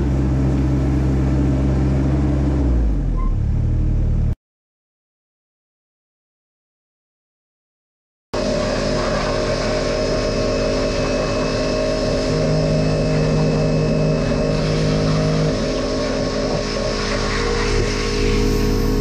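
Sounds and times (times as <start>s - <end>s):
pressure washer spraying: 8.4s - 19.0s
steady hum: 8.4s - 19.0s.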